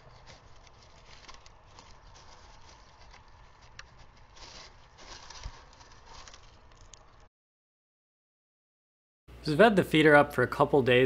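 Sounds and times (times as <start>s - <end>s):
seeds shifting and rattling: 0.0s - 7.3s
small clicks and scratches: 0.0s - 7.3s.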